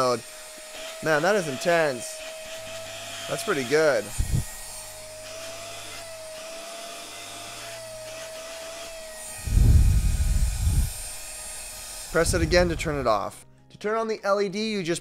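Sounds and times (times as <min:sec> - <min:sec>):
handheld vacuum motor whine: 0:00.0 - 0:13.4
loud low rumble: 0:12.2 - 0:13.2.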